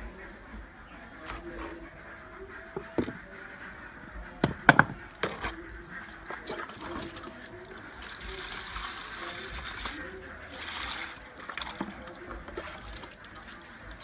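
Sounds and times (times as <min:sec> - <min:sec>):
plastic basin knocking on concrete: 0:02.7 - 0:03.2, 0:04.4 - 0:05.6.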